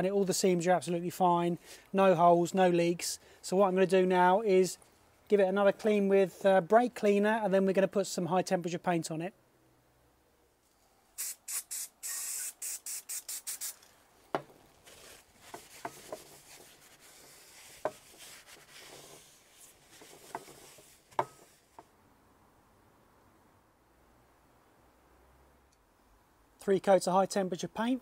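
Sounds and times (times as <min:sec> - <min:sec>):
aerosol spray hissing bursts: 0:11.2 - 0:13.9
cloth rubbing: 0:14.7 - 0:21.8.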